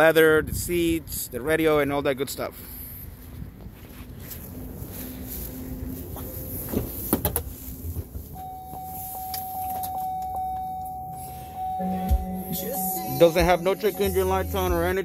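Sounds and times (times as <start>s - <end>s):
dashboard warning chime: 8.3s - 15.0s.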